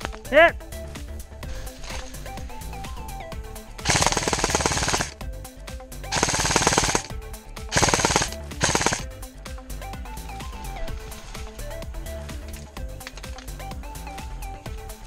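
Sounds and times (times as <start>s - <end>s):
airsoft rifle firing bursts: 3.8s - 5.2s, 6.1s - 9.2s.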